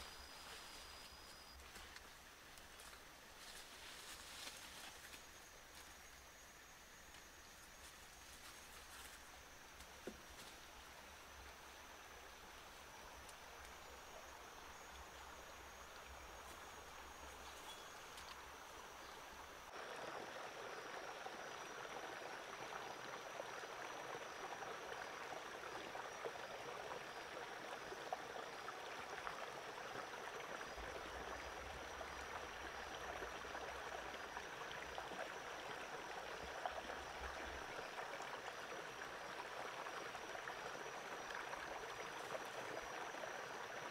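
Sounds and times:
high insect whine: 0:00.0 - 0:27.6.

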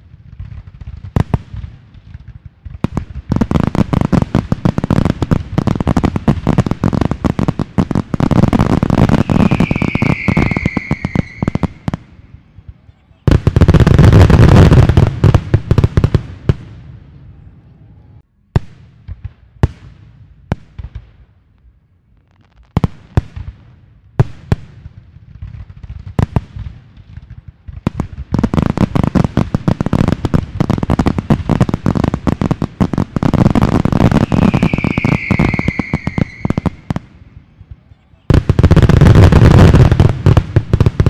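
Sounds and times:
firework bangs: 0:00.0 - 0:17.0, 0:22.5 - 0:41.0
high falling whistle: 0:09.0 - 0:11.9, 0:34.1 - 0:36.9.

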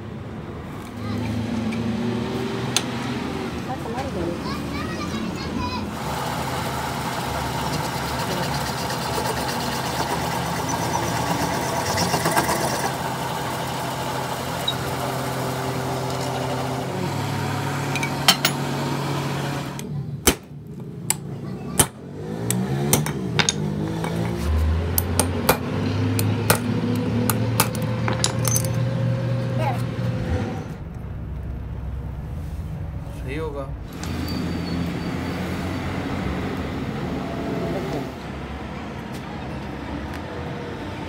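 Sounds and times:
metal lathe humming: 0:05.9 - 0:19.8.

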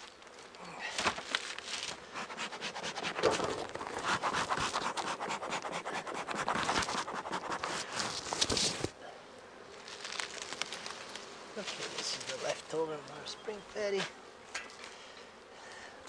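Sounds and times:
plastic sheet crinkling: 0:01.0 - 0:02.0, 0:09.8 - 0:11.3.

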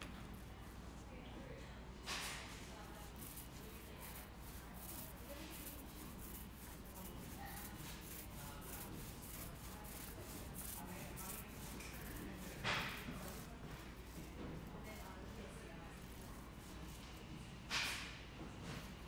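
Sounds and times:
paint roller rubbing: 0:02.6 - 0:17.4.

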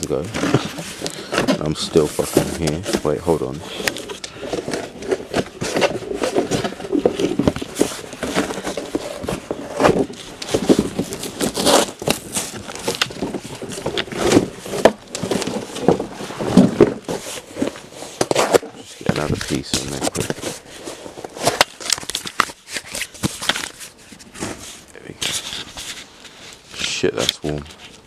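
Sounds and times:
paper crinkling: 0:00.0 - 0:28.0
fire crackling and popping: 0:10.3 - 0:16.0.

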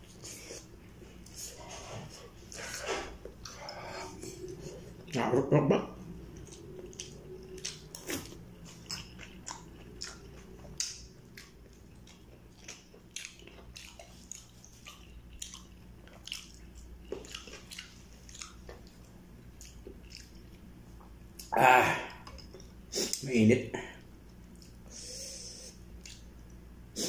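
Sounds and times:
person chewing and biting food: 0:06.2 - 0:20.6, 0:24.5 - 0:26.6.

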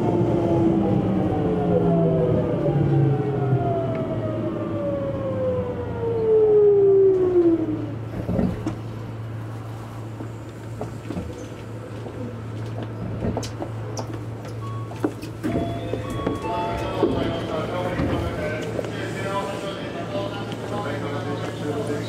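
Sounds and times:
train inverter whining: 0:00.0 - 0:09.3.

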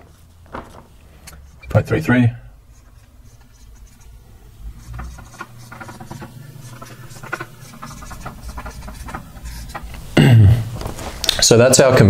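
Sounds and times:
marker pen writing on whiteboard: 0:02.6 - 0:10.2.

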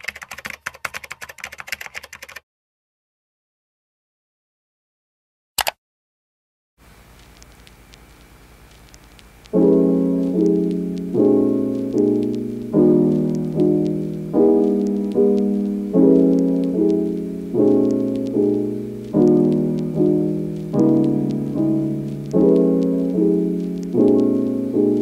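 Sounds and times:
faint crackling hiss: 0:06.8 - 0:25.0
piano chords: 0:09.5 - 0:25.0.

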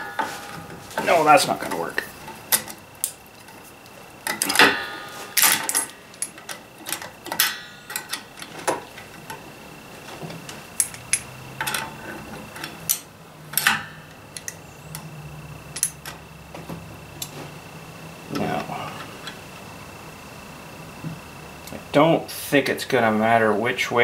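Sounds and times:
sharp ringing metal knocks: 0:04.4 - 0:06.0, 0:07.3 - 0:08.4
pliers clinking on metal: 0:10.8 - 0:12.0, 0:15.7 - 0:16.2.

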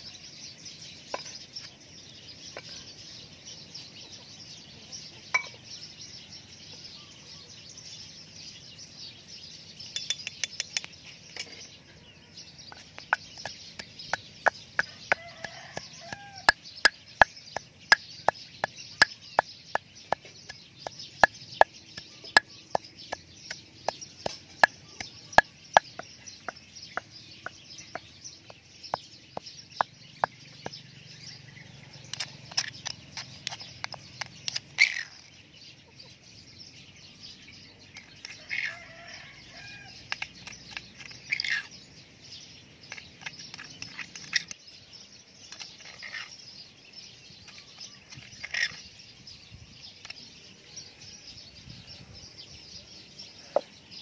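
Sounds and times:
metal spoon scraping stone: 0:12.6 - 0:30.7, 0:32.0 - 0:35.3, 0:40.1 - 0:41.7, 0:42.9 - 0:44.6, 0:45.5 - 0:46.4, 0:47.6 - 0:48.9
pestle pounding in stone mortar: 0:12.7 - 0:31.0.

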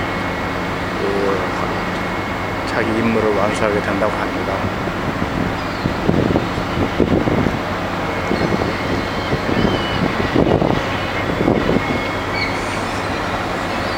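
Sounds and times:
faint high whine: 0:00.0 - 0:13.9
ship engine hum: 0:00.0 - 0:13.9
wind gusts on microphone: 0:00.0 - 0:13.9.

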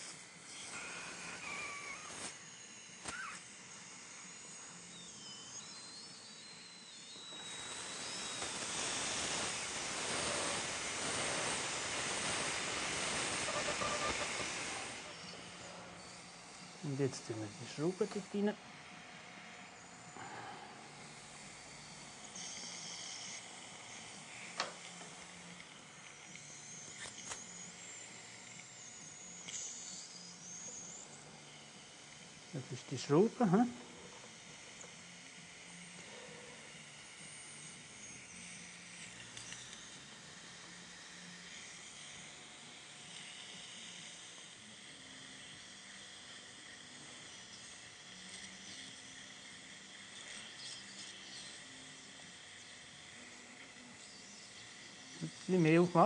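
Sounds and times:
dental drill hiss: 0:00.0 - 0:56.0
dental drill whine: 0:00.0 - 0:56.0
small ticks: 0:29.4 - 0:29.7, 0:47.2 - 0:51.6.

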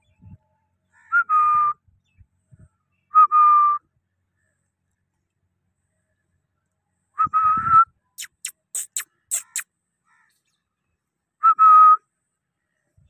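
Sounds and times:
sharp high parakeet chirps: 0:08.2 - 0:09.7.

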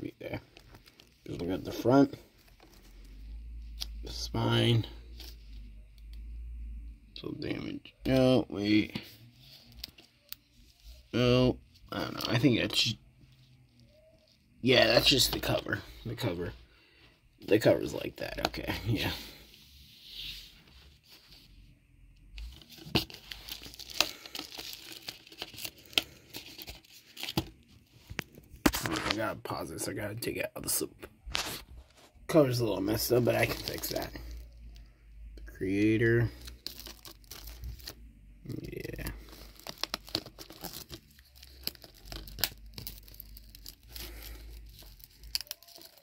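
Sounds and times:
plastic wrap crinkling: 0:22.4 - 0:29.4, 0:36.0 - 0:46.0.

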